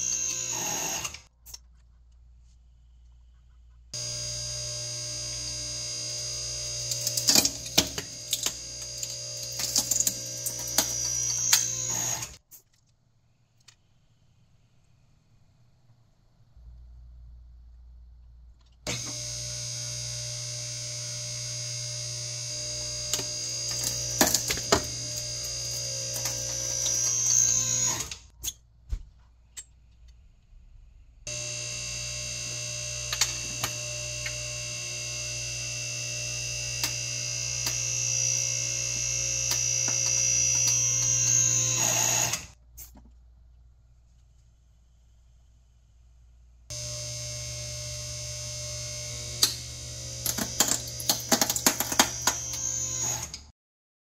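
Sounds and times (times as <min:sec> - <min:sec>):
hydraulic pump motor whine: 0:00.0 - 0:01.3, 0:04.0 - 0:12.4, 0:18.9 - 0:28.3, 0:31.3 - 0:42.6, 0:46.7 - 0:53.5.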